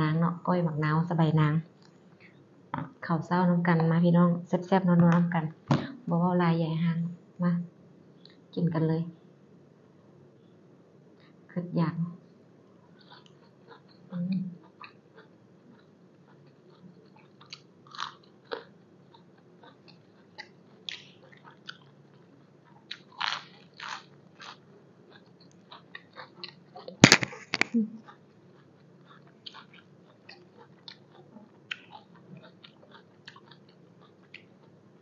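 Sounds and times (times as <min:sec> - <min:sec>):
chewing crisp raw vegetables: 0:12.7 - 0:35.0.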